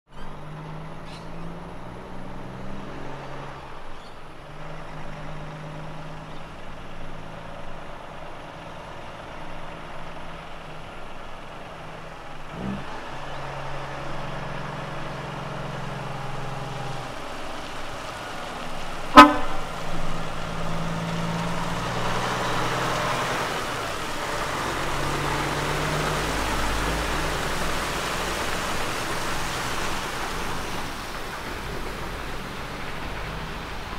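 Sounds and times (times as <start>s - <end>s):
truck diesel engine accelerating: 0.1s - 33.9s
tyres hissing on wet road: 0.1s - 33.9s
short loud horn toot: 19.2s - 19.8s.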